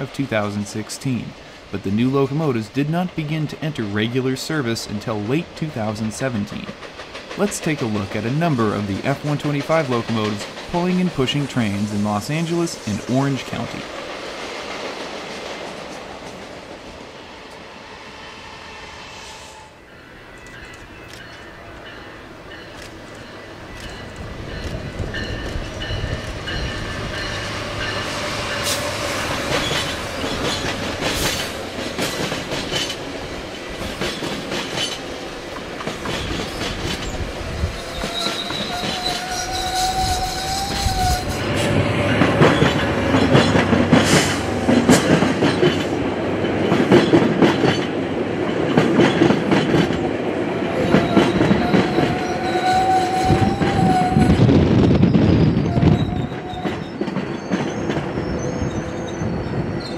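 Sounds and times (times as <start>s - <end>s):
train rolling past: 0.0s - 59.9s
wheels clicking over rail joints: 6.6s - 11.6s, 20.4s - 50.1s
high wheel squeal: 37.8s - 42.8s, 50.8s - 54.4s.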